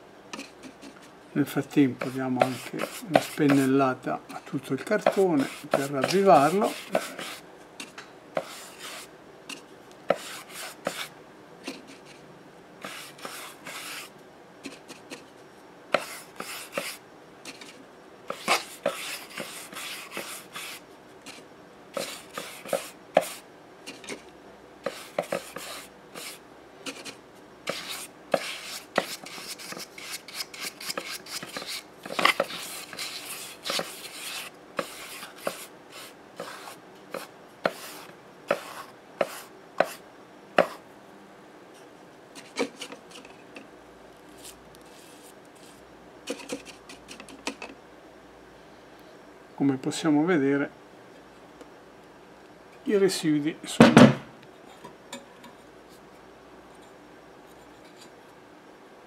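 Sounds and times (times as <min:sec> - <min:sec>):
brush scratching a loudspeaker cone: 0:02.0 - 0:03.8, 0:05.0 - 0:07.4, 0:12.8 - 0:14.1, 0:16.0 - 0:21.4, 0:22.0 - 0:24.2, 0:24.8 - 0:40.0, 0:44.3 - 0:47.2.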